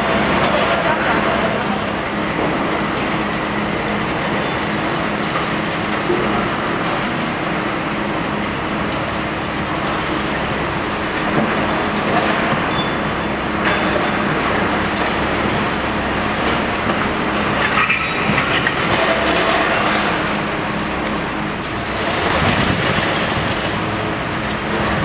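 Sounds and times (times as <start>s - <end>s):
diesel engines running: 0.0s - 25.0s
concrete rubble crunching: 11.4s - 25.0s
high squeals: 12.6s - 20.1s.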